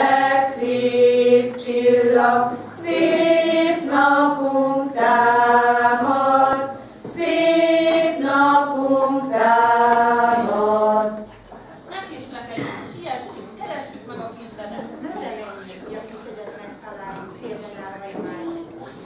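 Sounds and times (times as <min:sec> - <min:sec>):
women's choir singing: 0:00.0 - 0:11.4.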